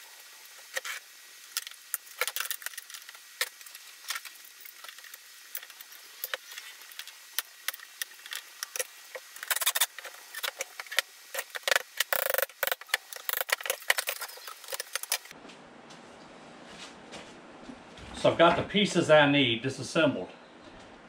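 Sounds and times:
hand tools clicking and tapping: 5.6s - 15.3s.

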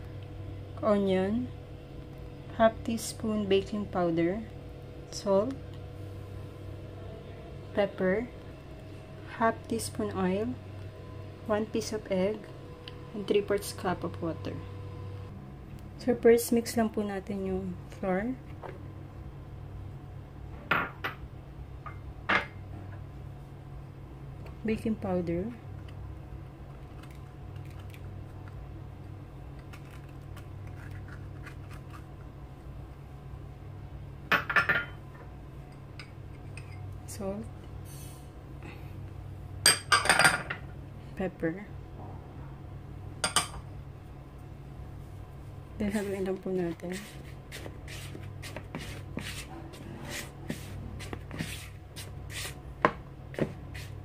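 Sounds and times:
steady low hum: 0.0s - 54.0s
fork scraping plastic bowl: 46.9s - 52.6s.

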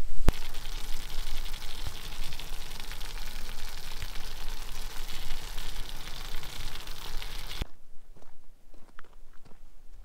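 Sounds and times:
food sizzling in a pan: 0.3s - 7.6s.

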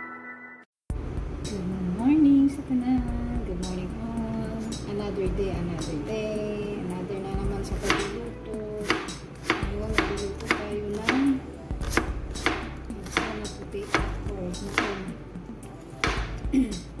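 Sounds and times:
knife chopping on cutting board: 7.8s - 8.2s, 8.8s - 15.1s, 16.0s - 16.4s.

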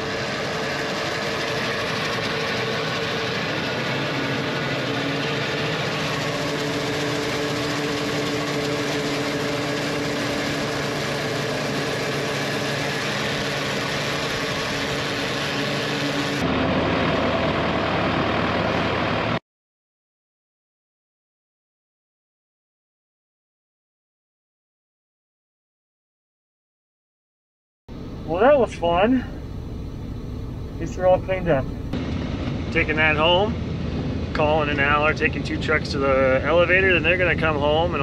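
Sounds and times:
tractor engine running: 0.0s - 19.4s, 27.9s - 38.0s.

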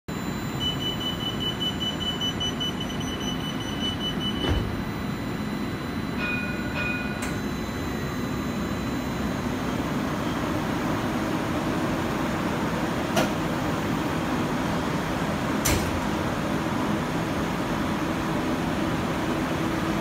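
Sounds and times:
two-tone chime: 0.1s - 9.9s
rapid high-pitched warning beeping: 0.1s - 10.6s
tram equipment hum: 0.1s - 20.0s.

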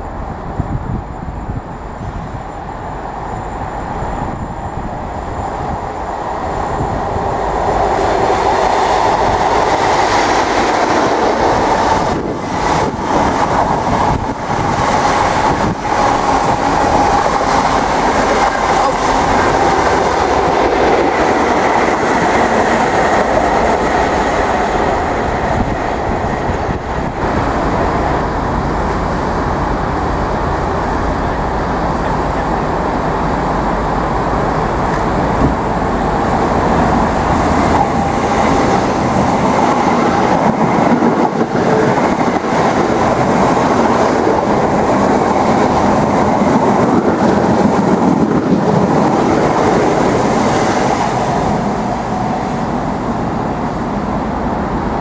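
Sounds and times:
diesel train engine passing: 0.0s - 55.0s
electric train running in: 0.0s - 55.0s.

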